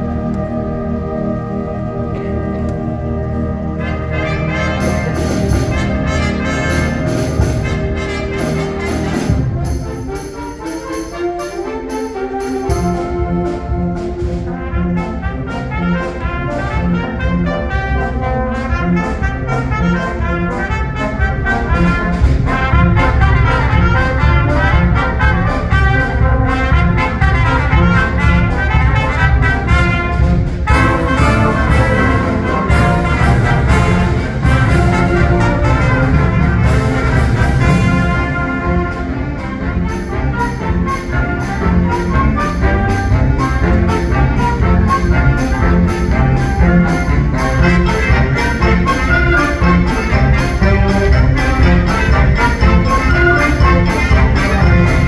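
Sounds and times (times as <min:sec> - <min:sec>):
concert band playing: 0:00.0 - 0:55.0.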